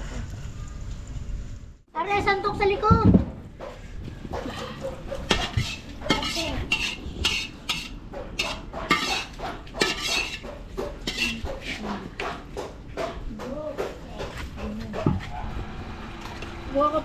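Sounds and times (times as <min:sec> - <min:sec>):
metal utensil scraping a pot: 0:04.4 - 0:12.4.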